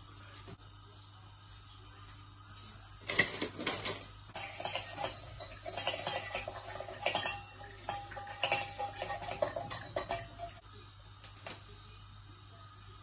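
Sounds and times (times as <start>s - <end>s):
clatter: 3.1s - 10.6s
wooden spoon scraping a wok: 4.4s - 10.3s.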